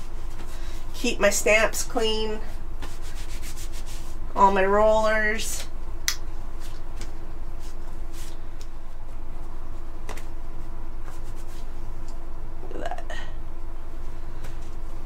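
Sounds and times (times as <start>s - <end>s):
steady low hum: 0.0s - 15.0s
wipe rustling over paint roller: 2.8s - 4.3s, 10.6s - 12.0s.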